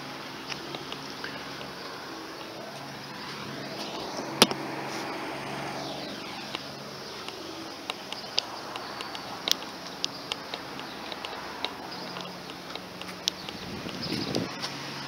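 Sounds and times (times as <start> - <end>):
rushing noise: 0.0 - 15.0
steady low hum: 0.0 - 15.0
light clicks and taps: 6.5 - 14.8.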